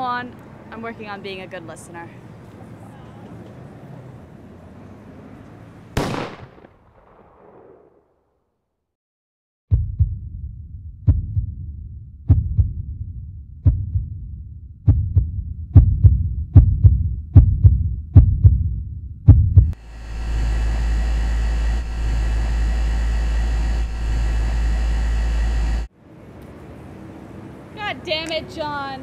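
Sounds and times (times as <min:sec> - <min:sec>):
heartbeat thumps: 0:09.7 - 0:25.9
steady droning tone: 0:19.7 - 0:25.9.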